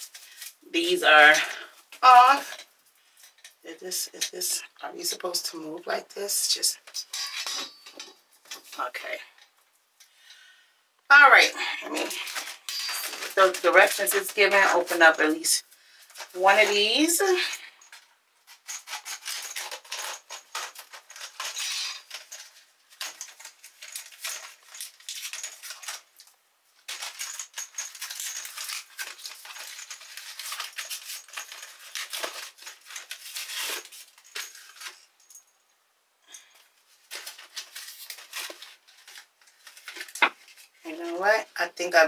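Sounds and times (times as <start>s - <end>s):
plastic packaging crinkling: 11.6s - 35.3s, 36.5s - 41.1s.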